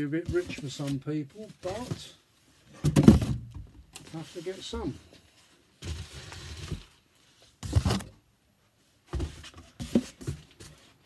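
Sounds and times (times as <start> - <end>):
cardboard box scraping and rustling: 5.8 - 8.1.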